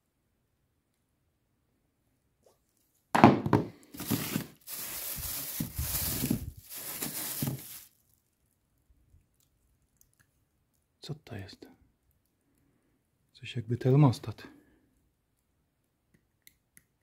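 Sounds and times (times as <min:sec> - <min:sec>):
plastic bag crinkling: 0:03.9 - 0:08.4.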